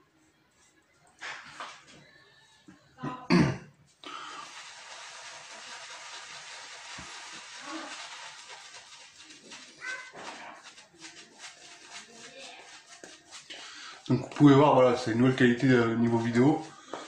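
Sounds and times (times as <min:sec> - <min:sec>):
person coughing: 0:03.0 - 0:03.7
shaving brush swishing lather: 0:04.0 - 0:17.0.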